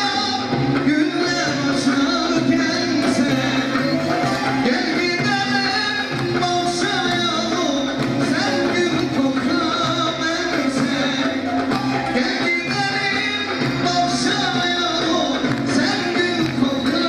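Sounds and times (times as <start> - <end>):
man singing through pa: 0.0 - 17.0
lute ensemble playing: 1.3 - 7.6.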